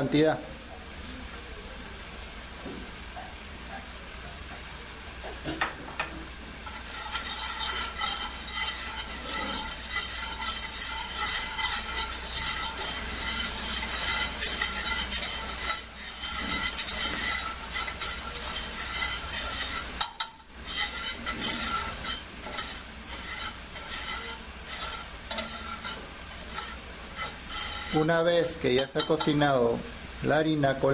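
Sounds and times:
roux sizzling in a pan: 0:02.0 - 0:30.9
whisk scraping against a pan: 0:06.5 - 0:30.4.

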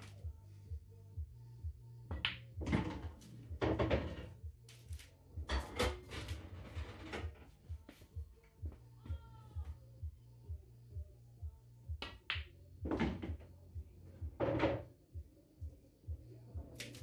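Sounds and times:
music with low beat: 0:00.0 - 0:17.0.

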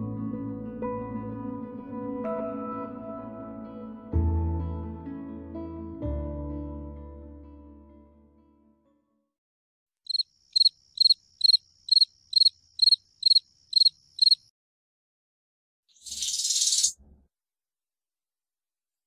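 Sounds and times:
high insect-like chirps: 0:10.1 - 0:14.5, 0:16.0 - 0:17.0.

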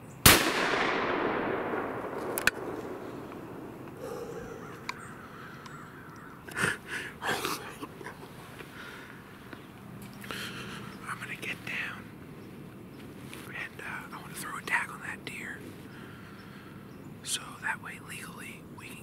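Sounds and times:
rifle shot echoing through woods: 0:00.2 - 0:06.1
sharp click: 0:02.0 - 0:04.0.

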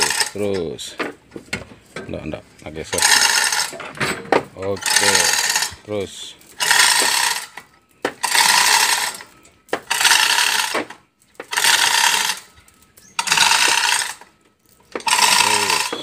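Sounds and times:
hand hoist ratcheting: 0:00.0 - 0:00.7, 0:02.9 - 0:03.9, 0:04.7 - 0:05.9, 0:06.6 - 0:16.0.

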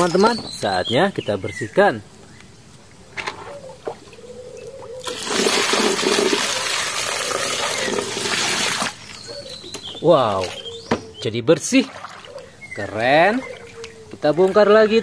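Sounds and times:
water splashing into plastic toy truck: 0:05.0 - 0:09.0.

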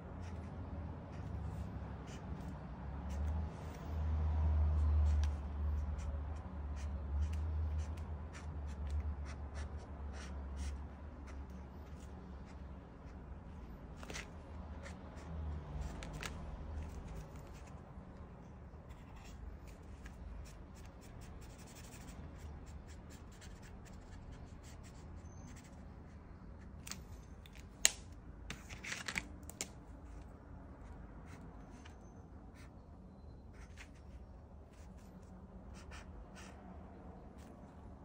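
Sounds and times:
marker scratching on canvas: 0:00.1 - 0:04.0, 0:04.8 - 0:16.2, 0:18.8 - 0:26.6, 0:33.6 - 0:36.7.

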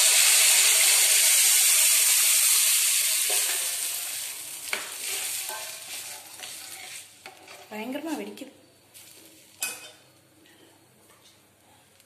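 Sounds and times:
liquid sizzling in hot oil: 0:00.0 - 0:07.7.

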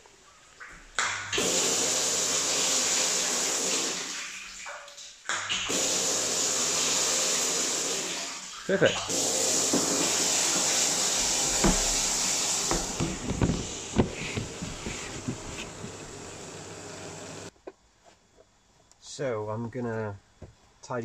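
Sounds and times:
water pouring into plastic tank: 0:00.8 - 0:16.3.

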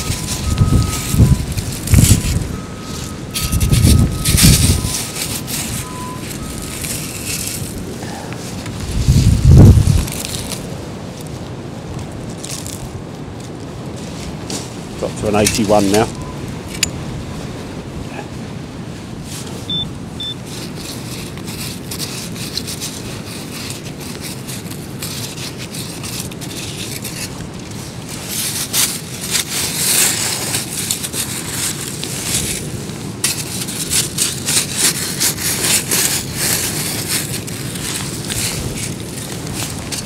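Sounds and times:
sand scoop rattling pebbles: 0:00.0 - 0:11.4, 0:12.3 - 0:12.9, 0:14.0 - 0:16.2, 0:20.3 - 0:40.0
wind buffeting microphone: 0:00.0 - 0:21.6.

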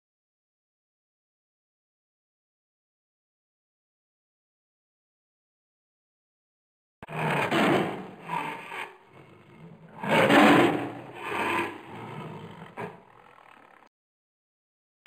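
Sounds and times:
lion cubs growling: 0:07.0 - 0:13.9.

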